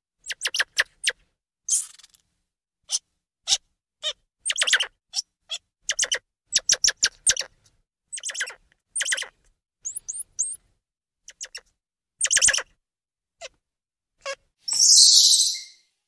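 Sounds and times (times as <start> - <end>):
monkey chirps: 0.2 - 2.2, 2.9 - 10.6, 11.2 - 12.8, 14.2 - 15.8
rising whistle-like monkey calls: 14.7 - 15.9.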